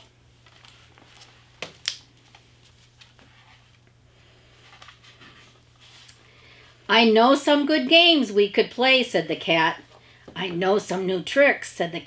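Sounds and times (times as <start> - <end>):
book pages rustling: 0.0 - 6.2.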